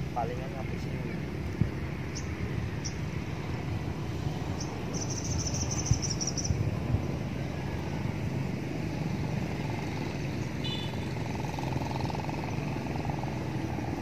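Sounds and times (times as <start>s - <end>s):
steady low rumble: 0.0s - 9.8s
bird twittering: 2.1s - 3.0s, 4.5s - 6.6s
high bird chirps: 2.1s - 3.0s, 4.6s - 6.6s.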